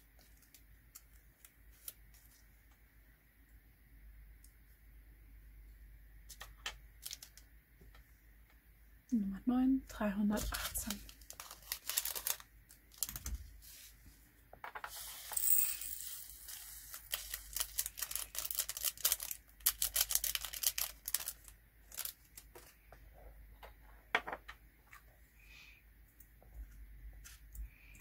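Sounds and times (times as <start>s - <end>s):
plastic bag crinkling: 10.4s - 13.4s, 16.4s - 22.8s
tiny beads pouring through funnel: 14.9s - 22.6s.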